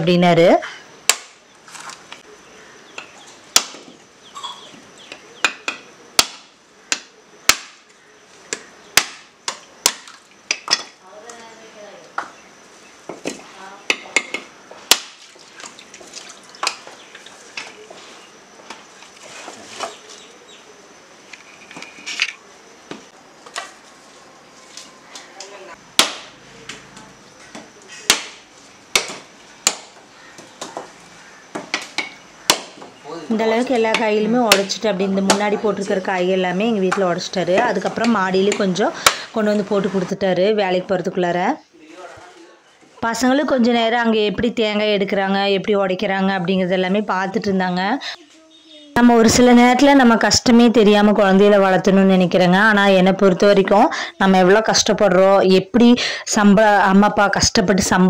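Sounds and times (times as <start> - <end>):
machete knocking coconuts: 1.1 - 1.4, 3.5 - 3.9, 5.4 - 7.9, 8.5 - 10.9, 13.2 - 15.2, 26.0 - 26.4, 27.5 - 30.9, 31.5 - 32.9.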